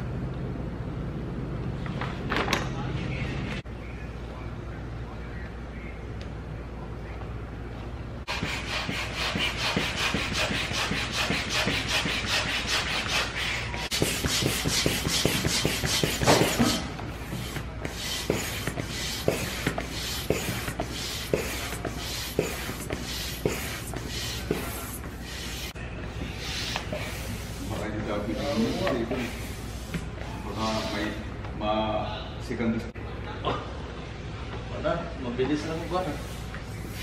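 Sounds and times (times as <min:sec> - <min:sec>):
hand air pump strokes: 0:08.3 - 0:31.2.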